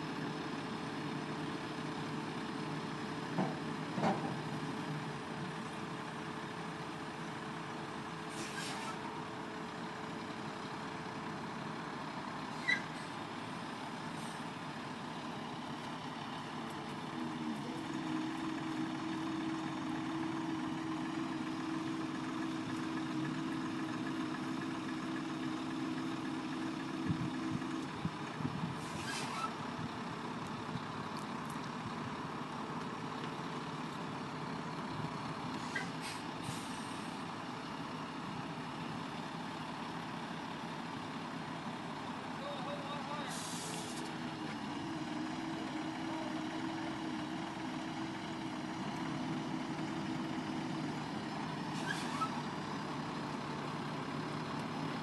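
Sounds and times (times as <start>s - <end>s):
diesel truck engine running: 0.0s - 55.0s
squeaks and clicks: 12.6s - 13.0s, 35.6s - 36.0s, 51.8s - 52.4s.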